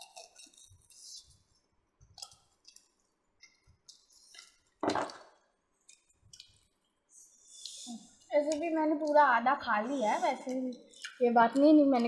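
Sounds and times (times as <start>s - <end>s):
wet chewing and lip-smacking: 2.1s - 4.8s, 5.8s - 6.9s, 10.4s - 11.6s.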